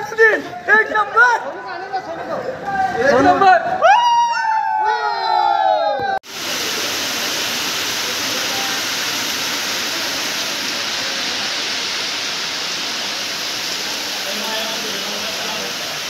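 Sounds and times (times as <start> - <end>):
heavy rain pouring: 6.2 - 16.0.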